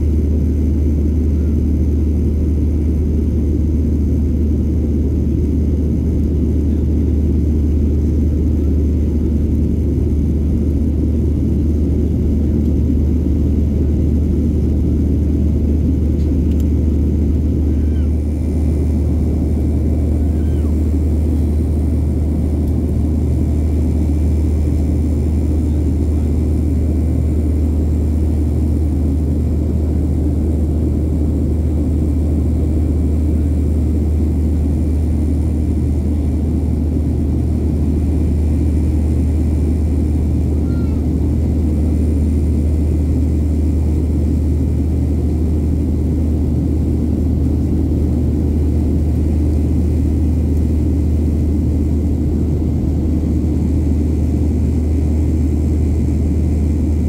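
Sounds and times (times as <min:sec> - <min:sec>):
aircraft cabin drone: 0:00.0 - 0:57.0
faint high whine: 0:16.2 - 0:34.2.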